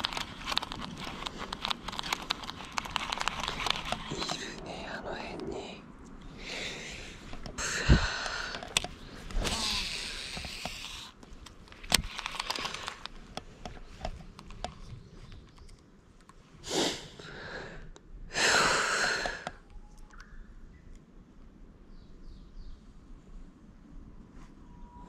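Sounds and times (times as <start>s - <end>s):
sharp clicks: 0.0s - 4.7s, 7.3s - 16.4s
man breathing heavily: 6.2s - 10.5s, 16.6s - 19.6s.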